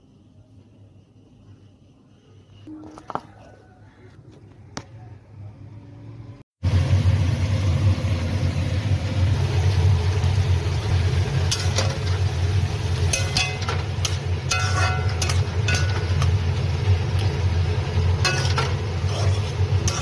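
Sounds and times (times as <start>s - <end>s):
low rumble with hiss: 5.0s - 20.0s
metal spatula scraping iron pan: 13.0s - 16.4s, 18.2s - 20.0s.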